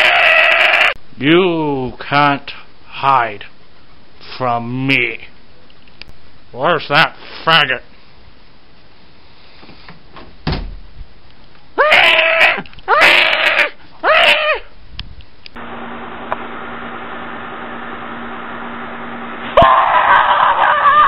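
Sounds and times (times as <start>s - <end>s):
thump: 10.2s - 10.9s
person screaming: 11.8s - 14.7s, 19.6s - 21.0s
steady low hum: 14.6s - 20.1s.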